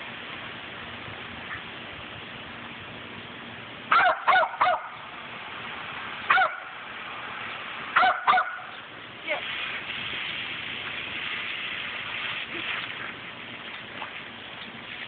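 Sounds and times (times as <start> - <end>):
small dog yapping: 3.9 - 4.9, 6.3 - 6.6, 8.0 - 8.6
garden hose spraying: 8.8 - 15.0.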